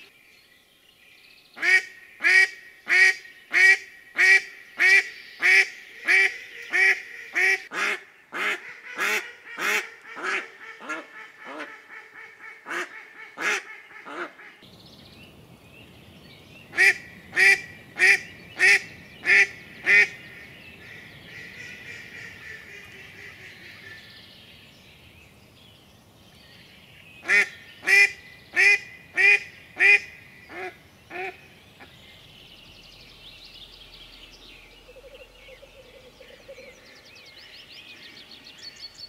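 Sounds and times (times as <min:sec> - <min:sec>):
duck decoy call quacking: 0:06.1 - 0:14.5.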